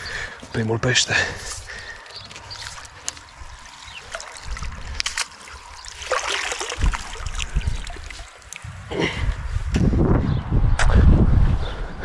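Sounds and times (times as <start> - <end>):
water splashing and trickling: 1.4 - 9.3.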